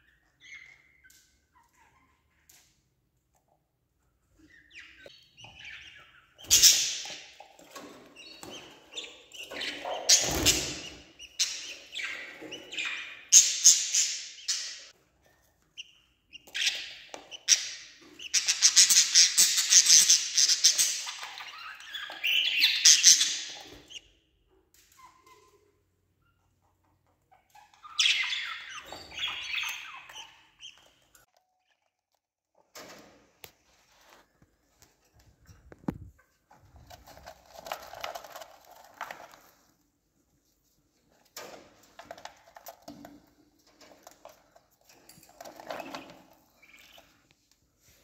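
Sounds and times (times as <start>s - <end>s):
budgerigars chirping and squawking: 4.5s - 14.9s, 15.8s - 24.0s, 27.3s - 31.0s, 45.5s - 47.2s.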